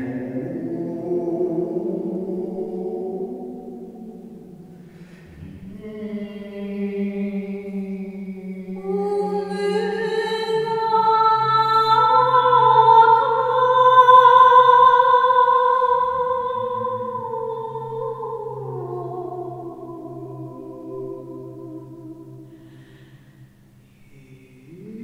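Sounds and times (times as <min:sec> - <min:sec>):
man singing low sustained tone: 0:05.1 - 0:22.7, 0:23.9 - 0:25.0
woman singing long notes: 0:05.4 - 0:23.1.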